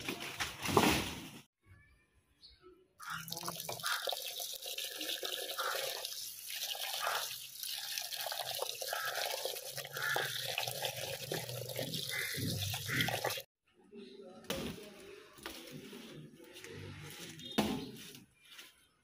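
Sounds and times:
water running and splashing: 0:03.0 - 0:13.5.

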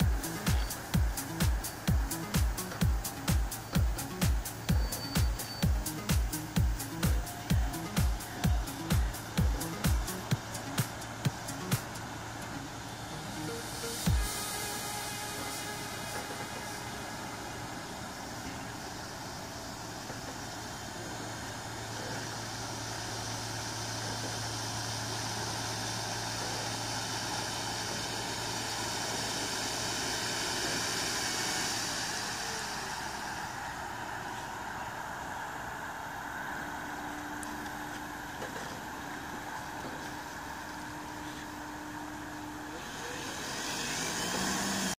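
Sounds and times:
short rising whine: 0:00.0 - 0:45.0
model plane motor and propeller: 0:06.4 - 0:33.6, 0:36.8 - 0:45.0.

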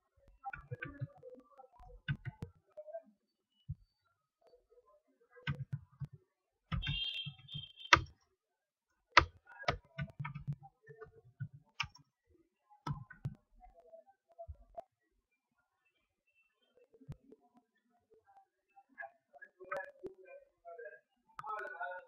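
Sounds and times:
computer mouse clicking: 0:02.0 - 0:02.5, 0:05.5 - 0:08.1, 0:09.2 - 0:12.0, 0:12.9 - 0:13.4.

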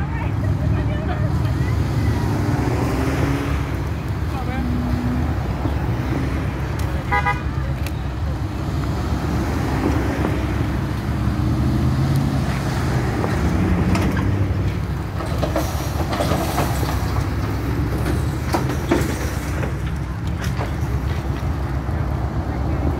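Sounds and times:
cars driving slowly past: 0:00.0 - 0:22.9.

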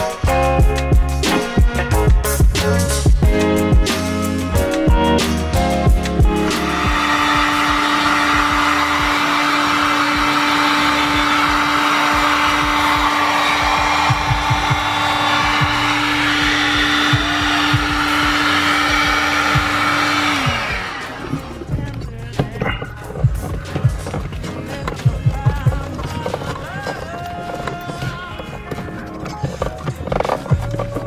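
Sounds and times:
heat gun blowing: 0:06.5 - 0:21.6.

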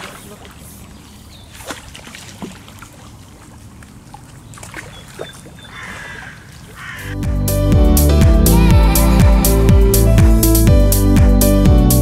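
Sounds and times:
water splashing and sloshing: 0:00.0 - 0:07.1.

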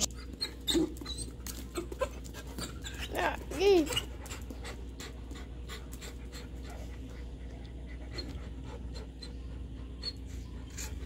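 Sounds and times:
dog panting: 0:01.8 - 0:11.0.

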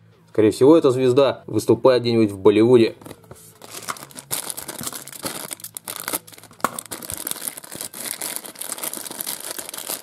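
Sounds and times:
plastic packet crinkling and tearing: 0:03.0 - 0:10.0.

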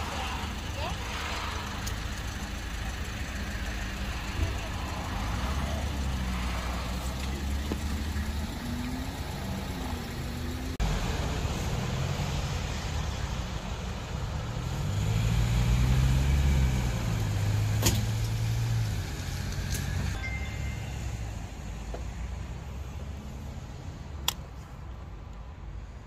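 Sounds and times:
truck engine moving off: 0:00.0 - 0:22.6
low vehicle engine hum: 0:00.0 - 0:26.0
sharp click: 0:24.2 - 0:24.5.

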